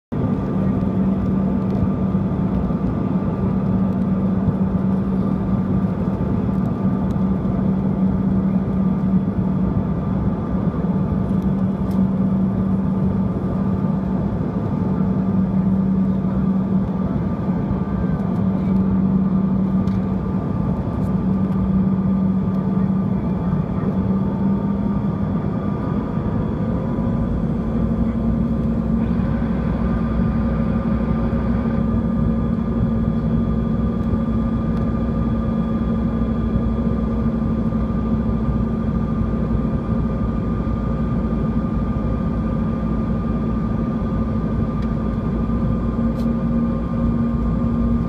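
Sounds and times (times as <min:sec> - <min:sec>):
jet engines droning: 0:00.1 - 0:48.0.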